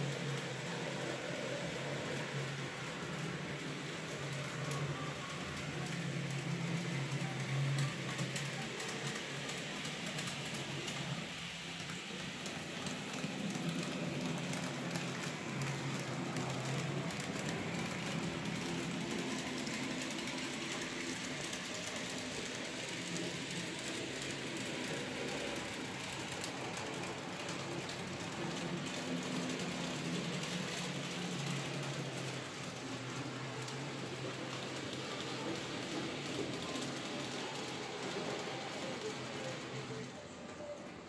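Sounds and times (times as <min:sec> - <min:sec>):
wheels clicking on track: 0:00.0 - 0:41.0.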